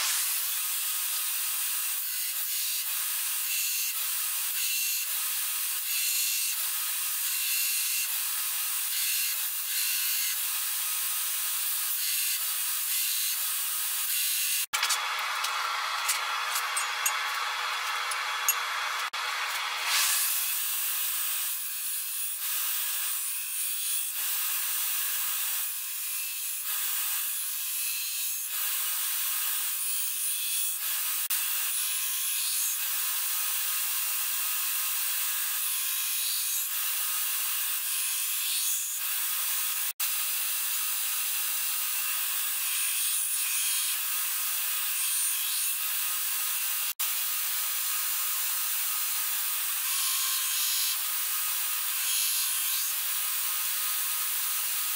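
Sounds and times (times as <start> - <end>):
belt grinder hissing: 0.0 - 5.8, 16.0 - 27.2.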